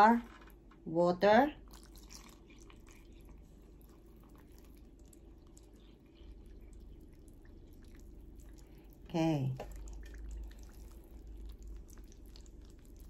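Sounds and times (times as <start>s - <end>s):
water pouring into a bowl: 1.7s - 3.2s.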